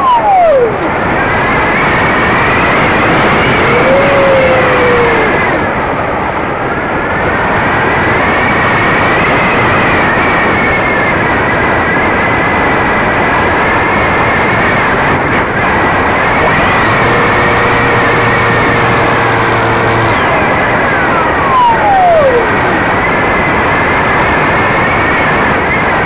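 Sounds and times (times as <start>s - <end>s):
tone sliding down in pitch: 0.0s - 0.9s, 3.5s - 5.6s, 16.3s - 22.8s
rushing noise: 0.0s - 26.0s
model aircraft motor whine: 2.4s - 5.6s, 16.2s - 22.6s.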